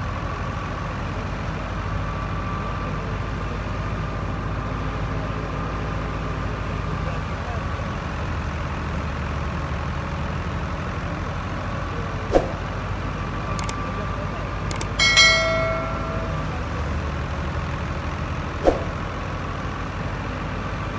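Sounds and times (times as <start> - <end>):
tractor diesel engine droning: 0.0 - 20.9
faint clicks: 14.7 - 16.5
short ringing bell chime: 14.7 - 17.0.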